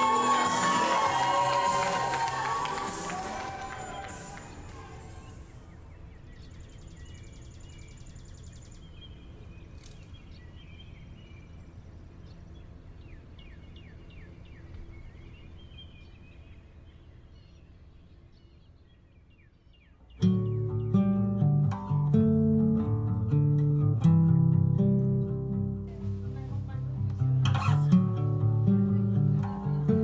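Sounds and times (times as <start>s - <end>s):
small birds chirping: 4.4s - 22.2s.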